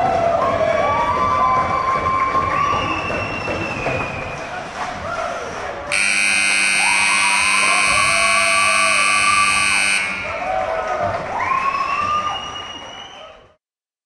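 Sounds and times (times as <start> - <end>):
buzzing arena horn: 5.9 - 10.9.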